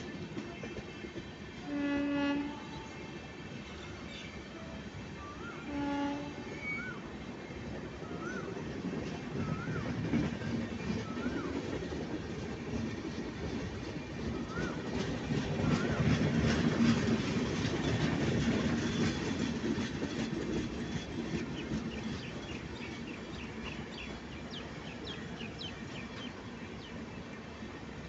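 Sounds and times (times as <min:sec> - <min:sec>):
train wheels clattering: 0:08.2 - 0:26.4.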